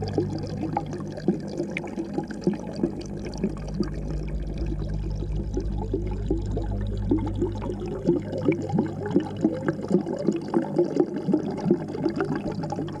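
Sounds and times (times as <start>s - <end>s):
low hum: 0.0s - 10.2s
underwater aquarium bubbling: 0.0s - 13.0s.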